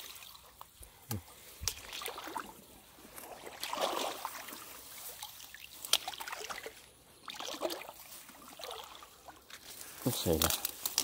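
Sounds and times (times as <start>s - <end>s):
water sloshing and trickling: 0.0s - 11.0s.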